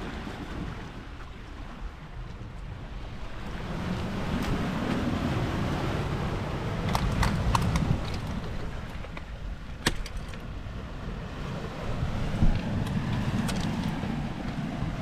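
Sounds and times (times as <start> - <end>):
sea wash: 0.0 - 15.0
wind buffeting microphone: 0.0 - 15.0.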